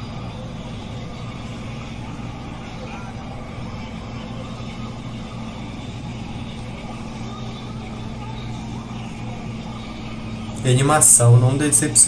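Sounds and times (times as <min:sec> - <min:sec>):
constant low hum: 0:00.0 - 0:12.0.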